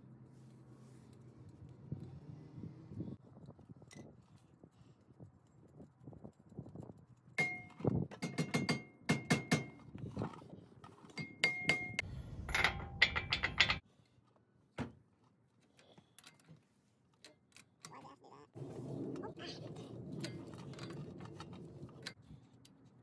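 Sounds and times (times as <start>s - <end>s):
metal tools clinking: 11.0s - 13.8s.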